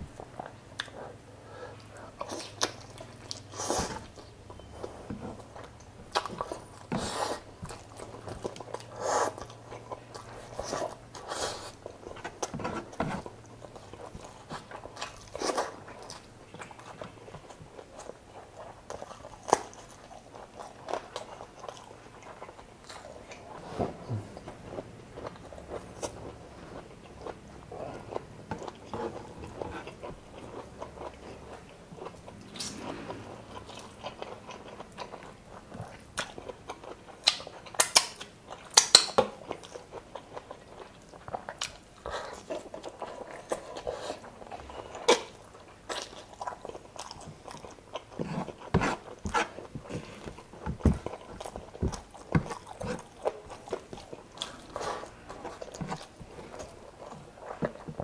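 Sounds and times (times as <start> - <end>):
biting and wet chewing: 0.0 - 58.0.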